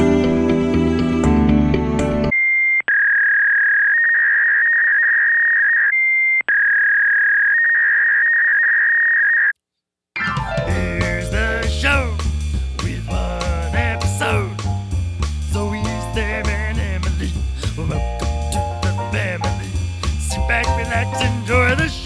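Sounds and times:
music: 0:00.0 - 0:02.3, 0:10.2 - 0:22.0
music with singing voice: 0:10.3 - 0:22.0.

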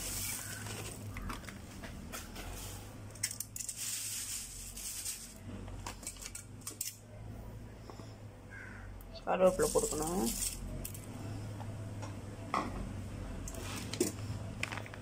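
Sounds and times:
corn flakes poured into glass bowl: 0:00.0 - 0:01.0, 0:03.4 - 0:05.4.

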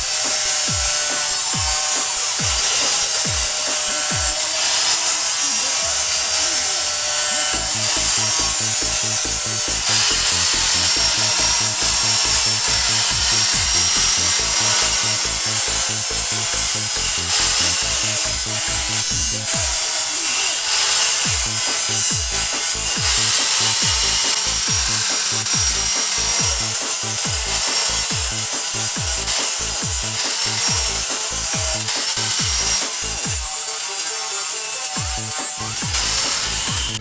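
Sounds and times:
angle grinder sanding plywood: 0:00.0 - 0:37.0
background music with beat: 0:00.0 - 0:37.0.

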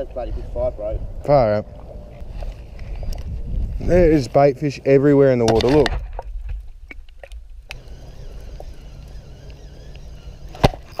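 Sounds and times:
faint high chirps: 0:07.7 - 0:11.0.

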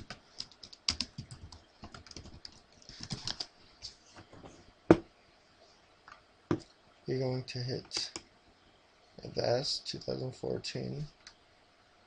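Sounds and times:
typing on computer keyboard: 0:00.0 - 0:03.5.

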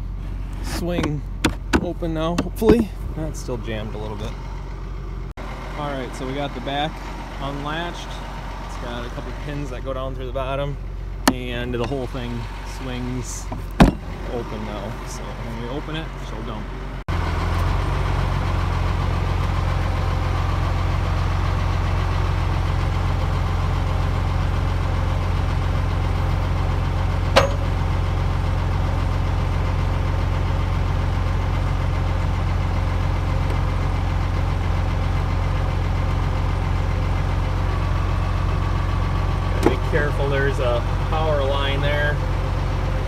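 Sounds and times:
tractor engine running: 0:00.0 - 0:43.0.

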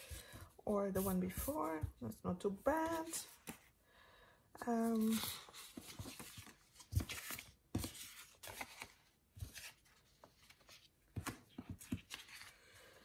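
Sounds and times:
paper sticker sheets rustling: 0:02.7 - 0:03.6, 0:04.8 - 0:12.7.

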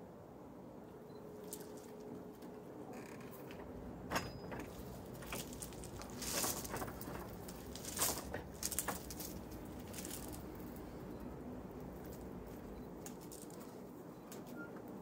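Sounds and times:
gravel crunching underfoot: 0:04.6 - 0:13.9.

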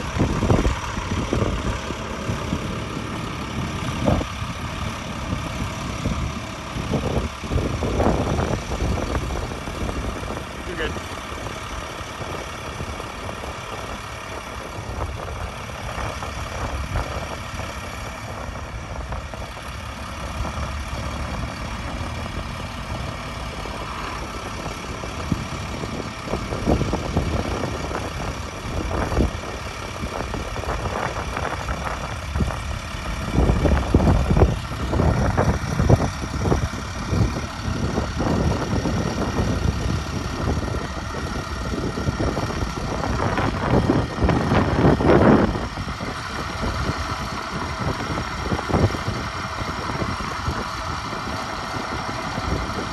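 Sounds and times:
low thumps and rumbles: 0:00.0 - 0:52.9
truck engine idling: 0:00.0 - 0:52.9.

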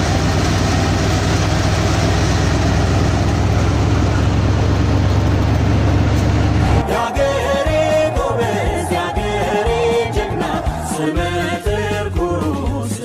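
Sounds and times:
vehicle engine rumbling: 0:00.0 - 0:12.4
music with singing: 0:06.6 - 0:13.0.

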